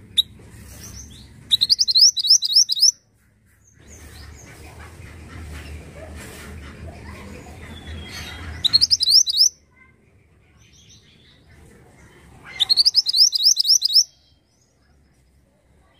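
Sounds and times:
bird whistling rising notes: 0:01.6 - 0:03.0.

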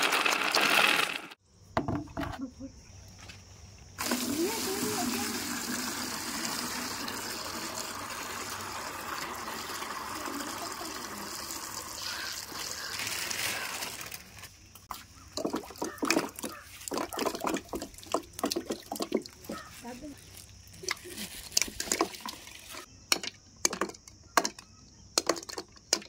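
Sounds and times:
water pouring into tub: 0:00.0 - 0:01.4, 0:04.0 - 0:14.2, 0:15.4 - 0:19.4
balls splashing into water: 0:15.3 - 0:19.6.

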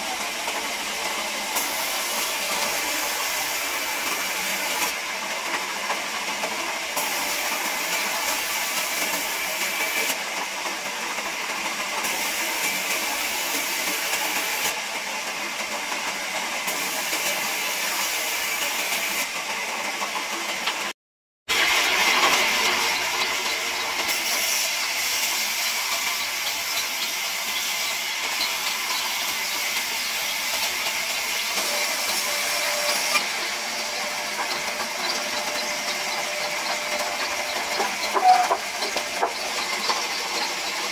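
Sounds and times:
band saw cutting timber: 0:00.0 - 0:05.0, 0:21.6 - 0:40.9.

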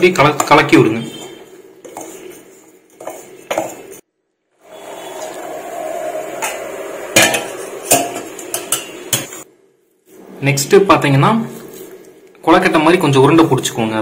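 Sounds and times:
spoon scraping flour in bowl: 0:01.1 - 0:04.0.

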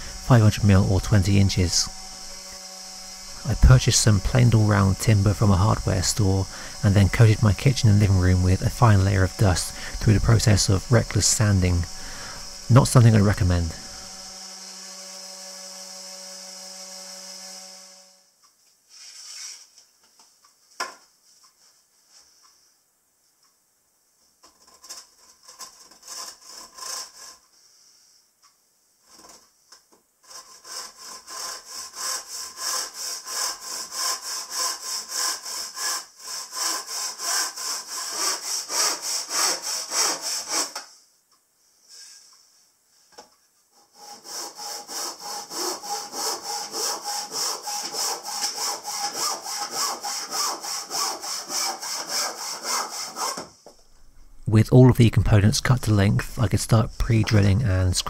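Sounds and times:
hand saw cutting wood: 0:00.0 - 0:18.2, 0:24.4 - 0:27.5, 0:30.2 - 0:40.9, 0:43.8 - 0:53.6.

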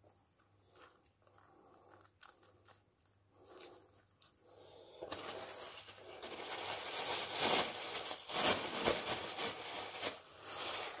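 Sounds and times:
cling film crinkling: 0:05.0 - 0:11.0.

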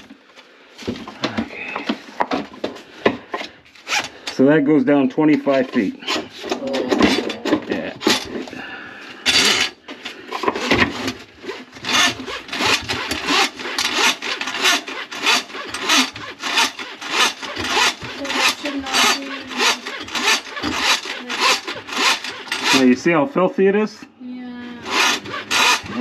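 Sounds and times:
drain snake cable scraping: 0:10.5 - 0:23.0, 0:24.8 - 0:26.0.

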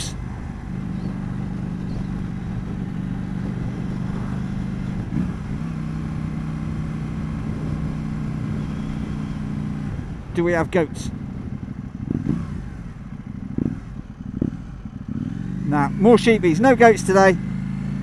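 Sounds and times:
motorcycle engine cruising: 0:00.0 - 0:18.0
wind rush: 0:01.7 - 0:05.6.

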